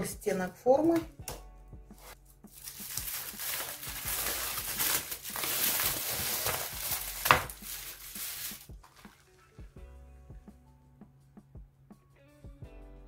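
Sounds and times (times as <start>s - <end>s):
aluminium foil crinkling: 2.0s - 9.6s.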